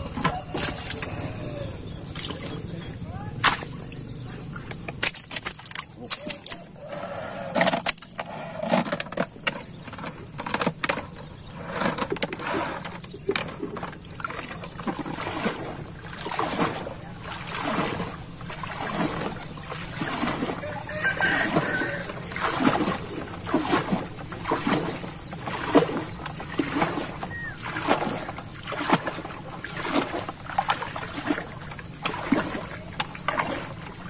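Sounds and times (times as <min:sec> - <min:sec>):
wet net pulled from water: 0:00.0 - 0:02.6, 0:14.2 - 0:31.5
water splashing and dripping: 0:00.0 - 0:06.7, 0:12.2 - 0:34.0
fish slapping in hull: 0:00.0 - 0:06.9, 0:07.6 - 0:34.0.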